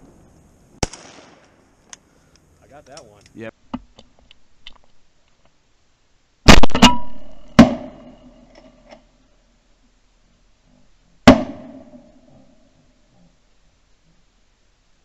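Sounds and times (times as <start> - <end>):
shotgun blasts: 0.8 - 1.6, 6.5 - 8.2, 11.2 - 12.2.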